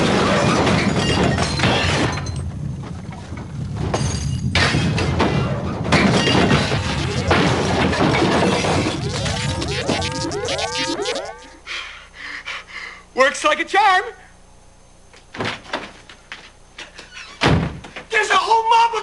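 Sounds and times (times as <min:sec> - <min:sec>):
crashing and glass breaking: 0:00.0 - 0:02.4, 0:06.0 - 0:11.5
warbling electronic tone: 0:06.3 - 0:11.7
music: 0:08.8 - 0:11.5.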